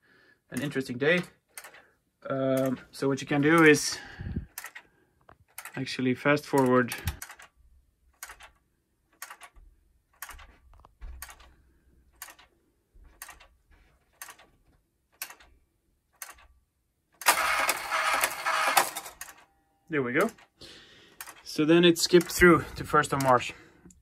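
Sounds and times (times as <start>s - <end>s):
flip clock leaves clicking: 0.6s - 1.8s, 2.4s - 4.8s, 5.5s - 7.5s, 21.2s - 23.5s.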